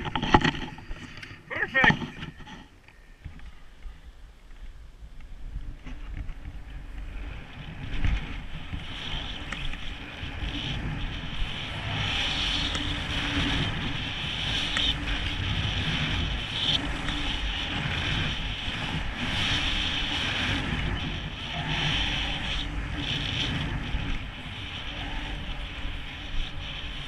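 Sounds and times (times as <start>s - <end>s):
wind buffeting microphone: 3.2s - 27.0s
skis scraping through snow: 5.6s - 27.0s.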